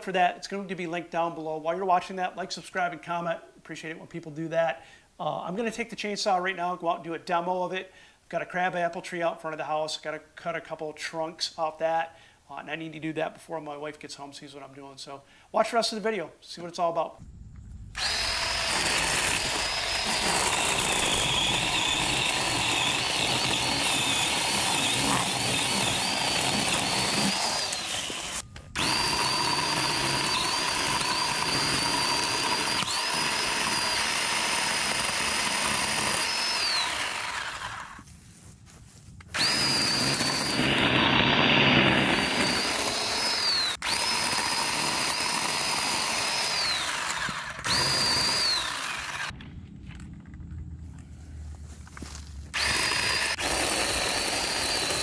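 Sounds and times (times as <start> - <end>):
cordless chainsaw motor whine: 17.9 - 38.0, 39.3 - 49.4, 52.5 - 55.0
chainsaw cutting wood: 18.0 - 38.0, 39.3 - 49.4, 52.5 - 55.0.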